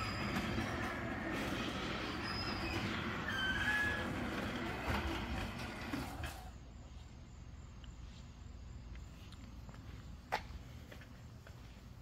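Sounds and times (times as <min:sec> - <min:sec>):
garage door rumbling: 0:00.0 - 0:06.6
high squeals: 0:00.0 - 0:06.6.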